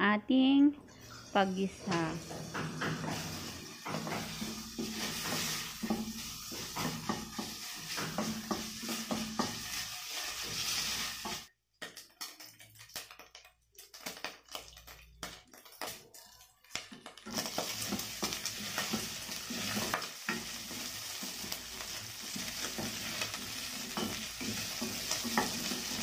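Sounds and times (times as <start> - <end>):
meat sizzling in a pot: 1.2 - 26.0
wooden spoon scraping a pot: 1.9 - 11.5, 17.3 - 26.0.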